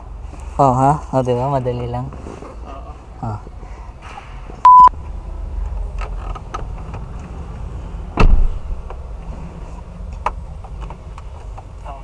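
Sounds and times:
loud electronic beep: 4.7 - 4.9
heavy thud: 8.2 - 8.8.

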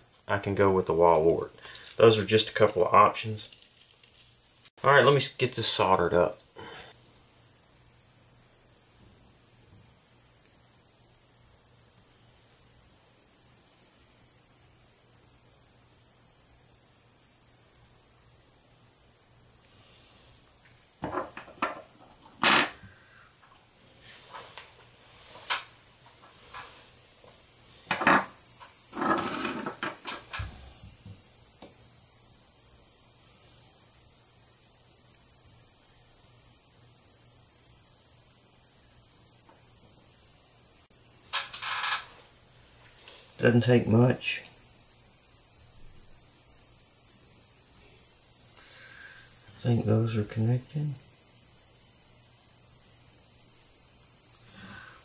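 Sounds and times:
faint high-pitched hiss: 0.0 - 55.0
small parts being handled: 3.5 - 4.4.

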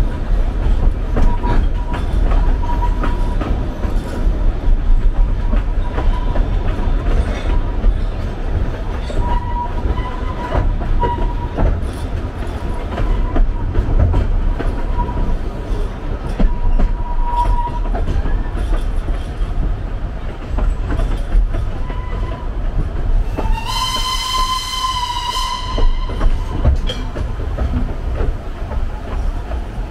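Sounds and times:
wheels clicking over rail joints: 0.0 - 24.2, 24.9 - 29.9
train rumbling: 0.0 - 29.9
locomotive whistle: 23.4 - 26.7.

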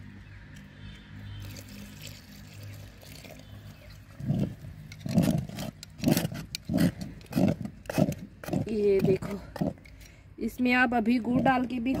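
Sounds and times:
water pouring into porridge: 1.4 - 4.1.

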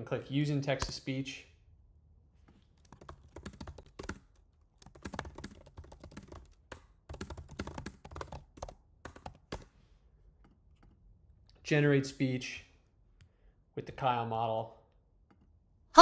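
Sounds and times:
computer keyboard typing: 2.7 - 9.7.

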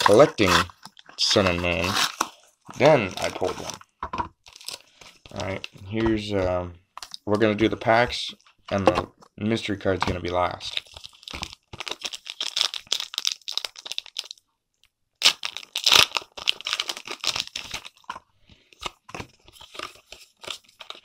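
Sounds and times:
foil wrapper tearing and crinkling: 0.0 - 3.8, 4.4 - 5.7, 10.6 - 14.4, 15.2 - 18.1.

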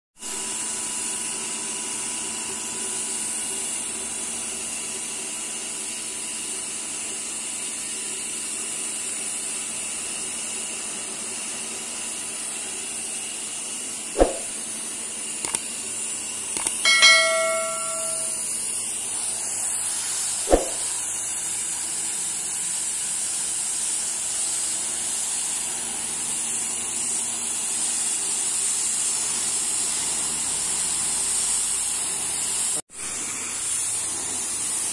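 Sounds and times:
sharp clicks: 15.4 - 15.6, 16.6 - 16.8
bell-like ringing tone: 16.8 - 18.5
pressure washer spray hiss: 19.1 - 31.8.

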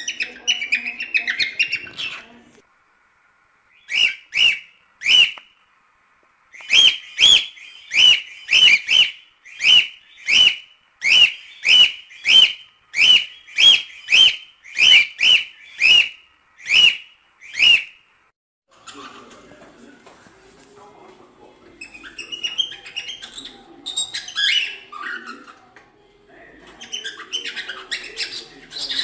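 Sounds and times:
cockatiel whistled chirps: 3.8 - 5.4, 6.5 - 18.0, 21.8 - 25.2.

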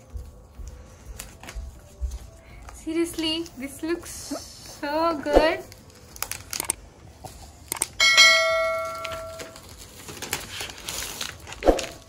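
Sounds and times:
bell-like notification chime: 8.0 - 9.6.

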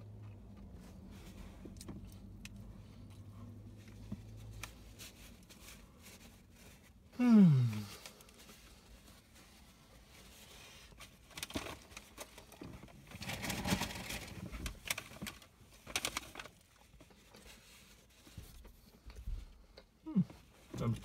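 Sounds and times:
person breathing: 7.2 - 8.3
paper wrapper rustling: 11.0 - 18.1.

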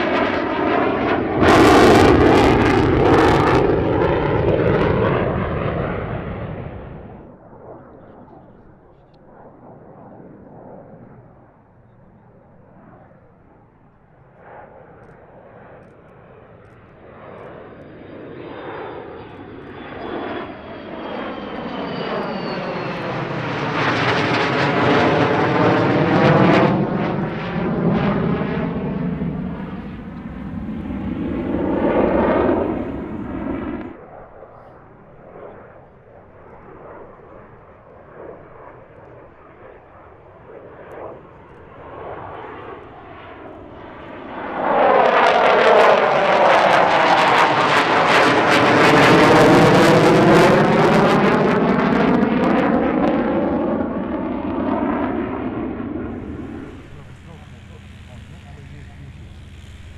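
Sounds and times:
jet engine roar with falling whine: 0.0 - 59.9.

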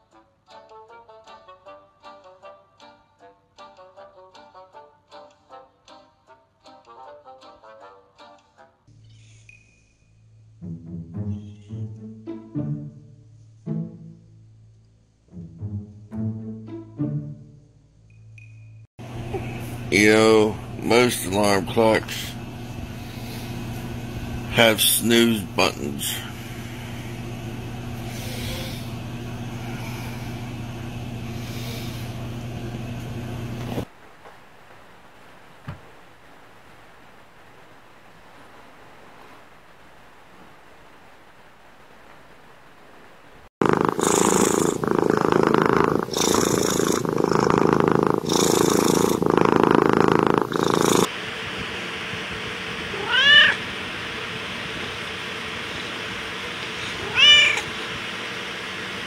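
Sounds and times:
cat purring: 28.0 - 32.2, 43.6 - 51.1
cat meowing: 52.9 - 53.6, 56.8 - 57.7.

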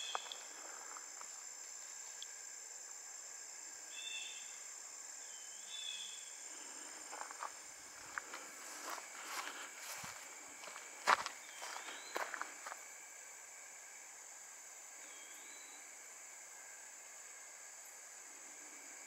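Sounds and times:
high-pitched insect drone: 0.0 - 19.0
light footsteps: 7.1 - 12.8.

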